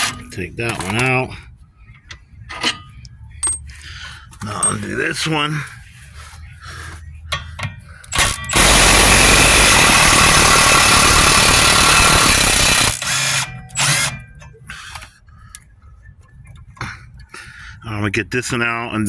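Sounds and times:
power tool spinning socket: 0:08.2 - 0:14.2.

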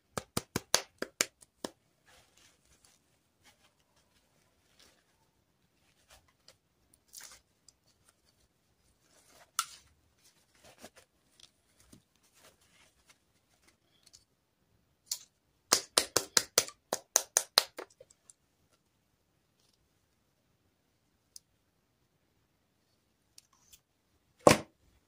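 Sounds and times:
hands handling plastic dolls: 0:00.0 - 0:20.3
fabric rustling: 0:01.8 - 0:14.0.

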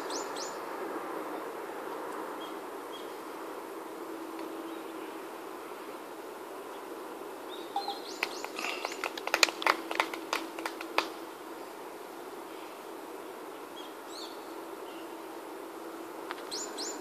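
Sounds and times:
faint steady hum: 0:00.0 - 0:17.0
birds chirping: 0:07.5 - 0:10.1.

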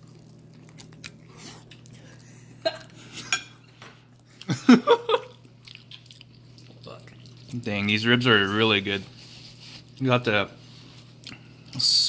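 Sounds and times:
low steady hum: 0:00.0 - 0:12.0
cutlery clinking on plates: 0:03.2 - 0:03.6
dishes clattering: 0:03.2 - 0:03.7.

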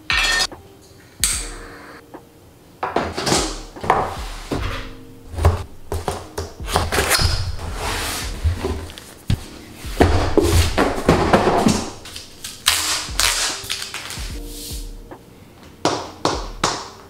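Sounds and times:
rustling of cardboard and packaging: 0:03.1 - 0:14.5
cardboard box knocks and thuds: 0:05.4 - 0:11.9.

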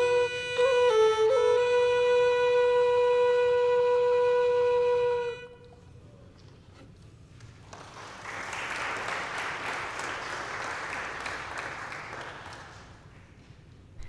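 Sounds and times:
music: 0:00.0 - 0:06.9
congregation applauding: 0:07.5 - 0:13.6.

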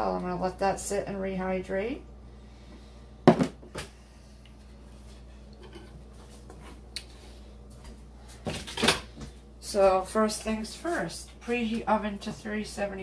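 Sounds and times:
glass bowl knocking on countertop: 0:03.3 - 0:03.6.

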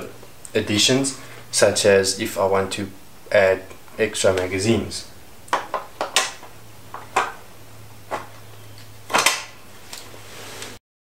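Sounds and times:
handling clicks and taps: 0:05.5 - 0:07.4.

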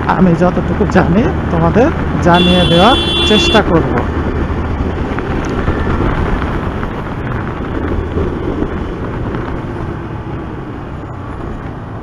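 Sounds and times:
road noise: 0:00.0 - 0:12.0
motorcycle engine droning: 0:02.4 - 0:03.6
wind rushing on microphone: 0:03.6 - 0:12.0.

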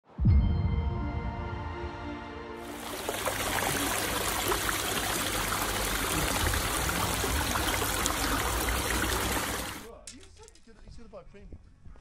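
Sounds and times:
water trickling over stone: 0:02.7 - 0:09.9.

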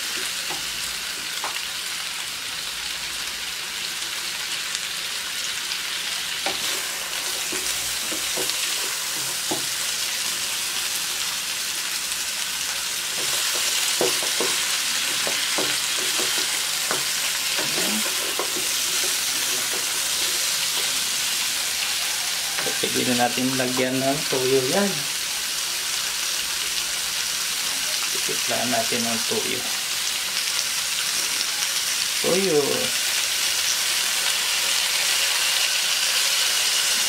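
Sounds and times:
chicken sizzling in wok: 0:00.0 - 0:37.0
spatula knocking and scraping pan: 0:06.4 - 0:09.8, 0:13.1 - 0:21.2.

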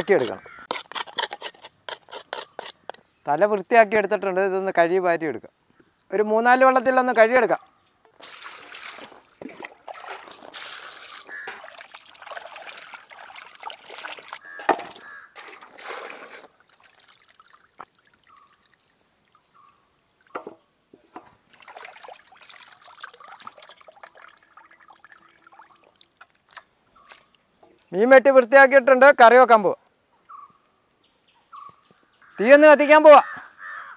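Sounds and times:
water pouring and splashing in basin: 0:08.1 - 0:19.4, 0:21.2 - 0:27.4
water dripping and trickling: 0:08.1 - 0:20.5, 0:21.2 - 0:27.6.

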